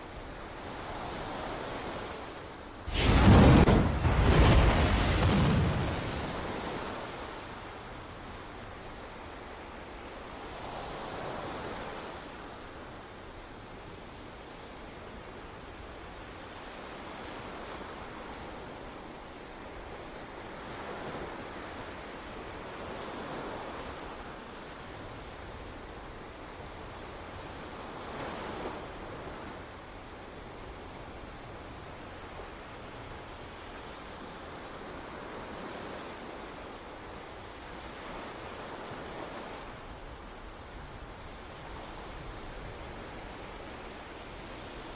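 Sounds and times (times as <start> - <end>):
sea waves washing: 0.0 - 13.6.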